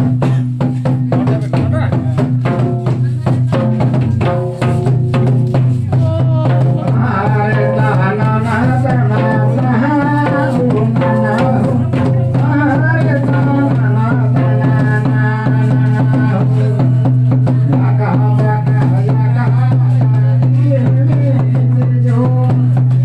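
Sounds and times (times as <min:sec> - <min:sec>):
dance music with singing and drums: 0:05.5 - 0:23.0.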